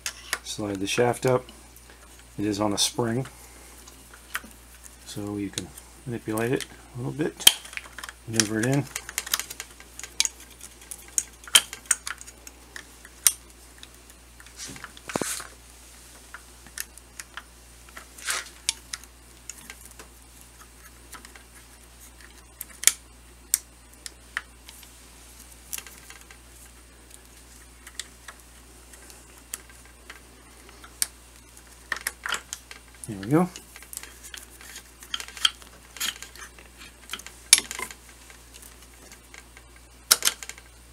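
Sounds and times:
metal parts clicking and scraping: 7.4s - 15.5s, 31.9s - 40.7s.

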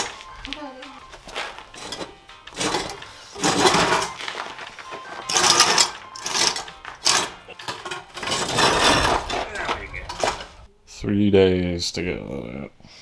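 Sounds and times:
metal dragged scraping on concrete: 1.3s - 4.4s, 5.0s - 10.7s.

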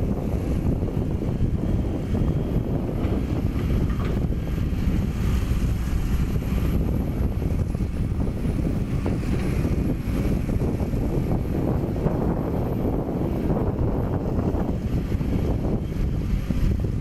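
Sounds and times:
diesel engine rumbling: 0.0s - 17.0s.

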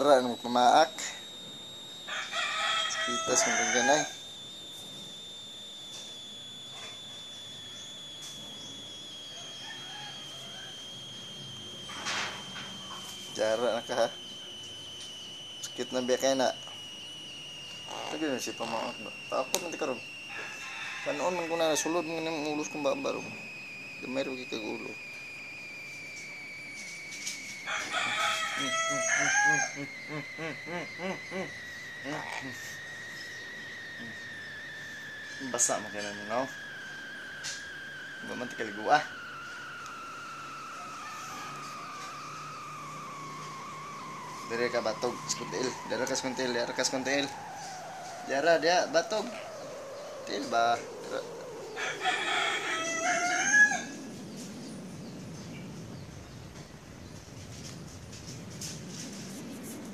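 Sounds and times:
high-pitched insect drone: 0.0s - 59.9s
steady high whine: 0.0s - 59.9s
crow calling: 45.8s - 54.0s.

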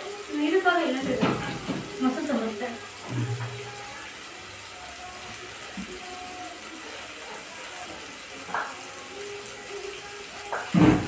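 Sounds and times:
faint background music: 0.0s - 11.0s
food sizzling in oil: 0.0s - 11.0s
light knocks on pan: 8.5s - 8.8s, 10.5s - 11.0s.

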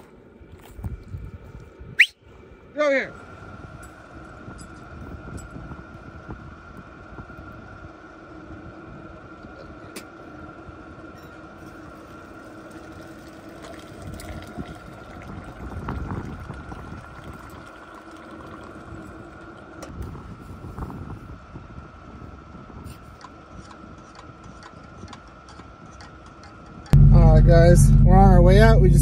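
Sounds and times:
steady background hum: 0.0s - 29.0s
hot water pouring into a cup: 12.0s - 19.9s.

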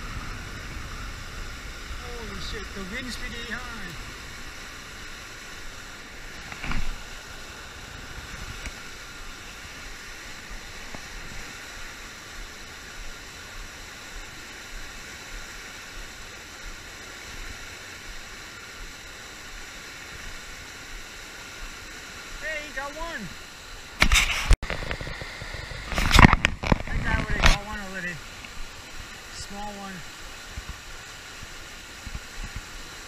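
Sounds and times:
wind buffeting the microphone: 0.0s - 20.5s, 24.0s - 29.3s
river water rushing over a dam: 0.0s - 33.0s.

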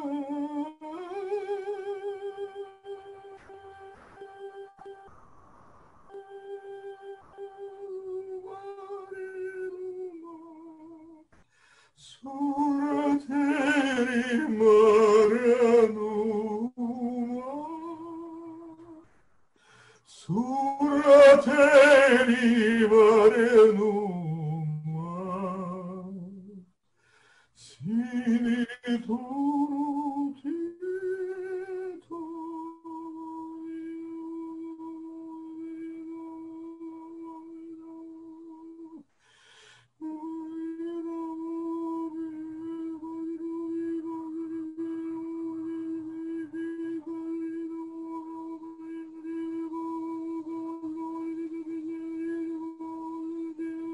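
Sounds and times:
man singing a chant: 0.0s - 5.1s, 6.1s - 11.4s, 12.0s - 19.0s, 20.1s - 26.7s, 27.6s - 39.1s, 40.0s - 53.9s.

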